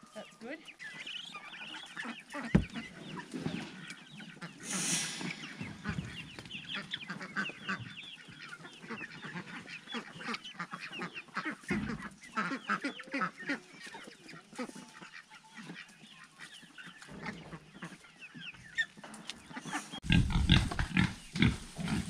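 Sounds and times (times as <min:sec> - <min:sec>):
poultry clucking: 0:00.0 - 0:22.0
low thump: 0:02.5 - 0:02.9
brief rush of noise: 0:04.6 - 0:05.7.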